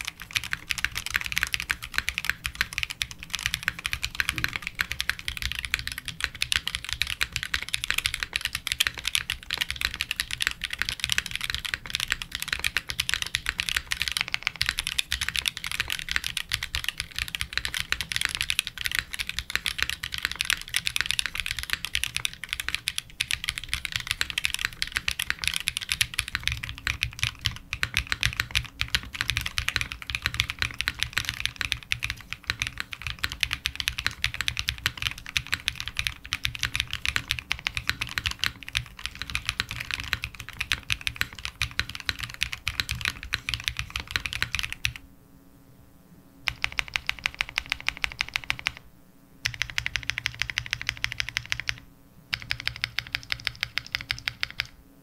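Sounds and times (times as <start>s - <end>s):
fast typing on mechanical keyboard: 0.0s - 45.0s, 46.5s - 48.8s, 49.4s - 54.8s.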